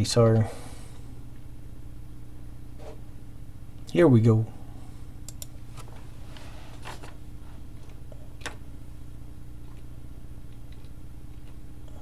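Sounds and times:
steady low hum: 0:00.0 - 0:12.0
light clicks: 0:05.3 - 0:05.5.

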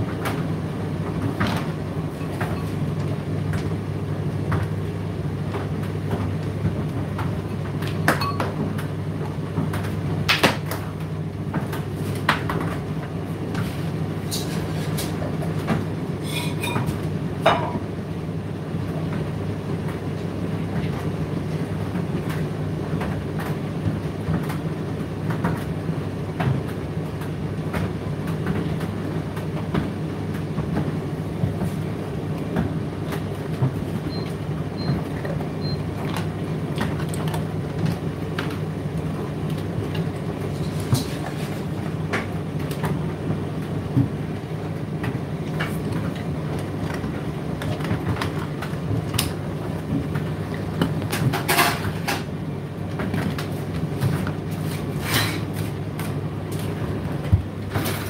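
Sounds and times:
tumble dryer humming: 0:00.0 - 0:16.2.

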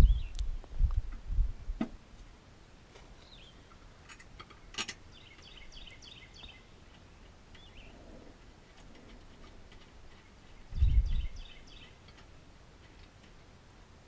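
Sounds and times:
bird chirping: 0:00.0 - 0:00.5, 0:03.2 - 0:03.8, 0:05.0 - 0:12.2.

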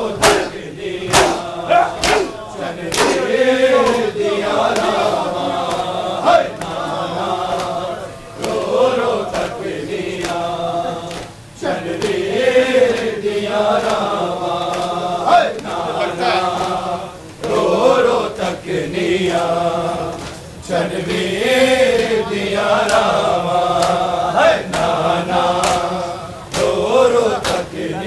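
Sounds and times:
crowd of men chanting: 0:00.0 - 0:28.0
chest-beating slaps: 0:00.2 - 0:04.1, 0:10.2 - 0:10.4, 0:26.5 - 0:26.8, 0:27.4 - 0:27.7.

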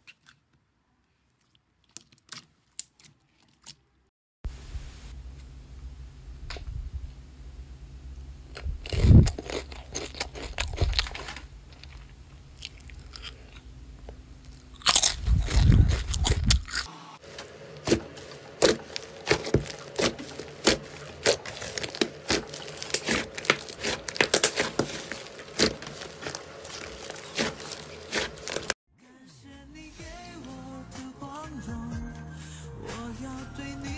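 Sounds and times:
slime squelching: 0:01.2 - 0:04.0, 0:14.6 - 0:28.8
squishy crackles: 0:01.3 - 0:04.0, 0:14.5 - 0:28.8.

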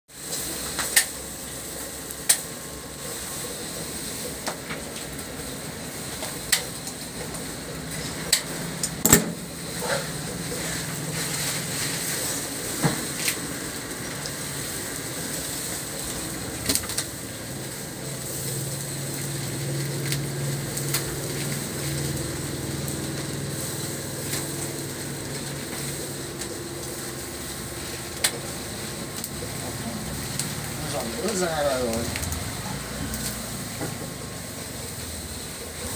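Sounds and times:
steady background noise: 0:00.1 - 0:35.9.

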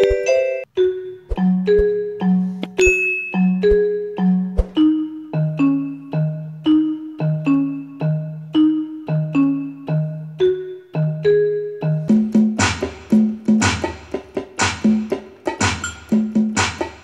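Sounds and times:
percussion: 0:00.0 - 0:00.7, 0:01.3 - 0:06.3, 0:11.9 - 0:17.0
melody of struck notes: 0:00.0 - 0:17.0.

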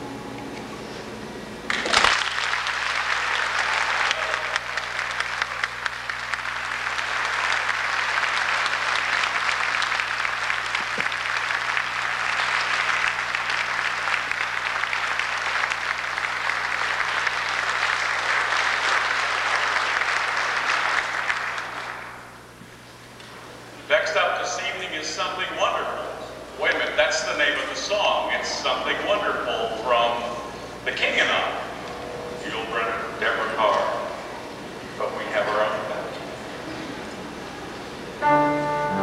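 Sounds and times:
audience applauding: 0:01.6 - 0:22.4.

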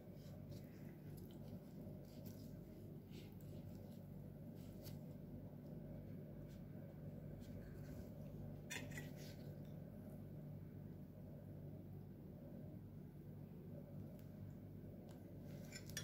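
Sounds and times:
steady low hum: 0:00.0 - 0:16.0
spoon scraping ceramic bowl: 0:15.6 - 0:16.0.

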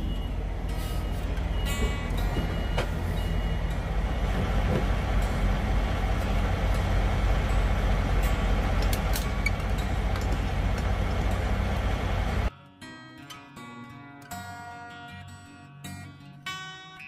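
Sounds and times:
truck diesel engine idling: 0:00.0 - 0:12.5.

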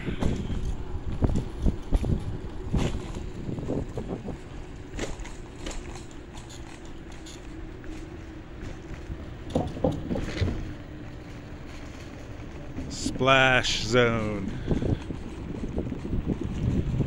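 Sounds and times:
scooter wheels rumbling over boards: 0:00.0 - 0:17.0.

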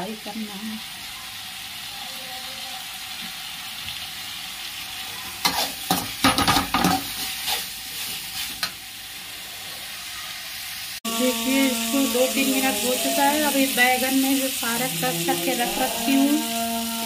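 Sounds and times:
masala sizzling in a pan: 0:00.0 - 0:17.0
spatula scraping metal pan: 0:05.4 - 0:08.7.

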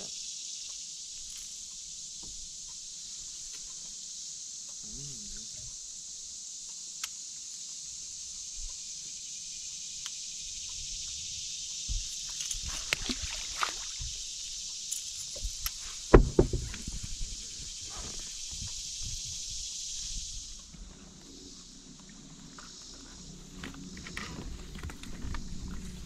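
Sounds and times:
water sloshing: 0:12.1 - 0:14.3
heavy thump: 0:16.1 - 0:17.2
steady high-pitched drone: 0:17.2 - 0:26.0.

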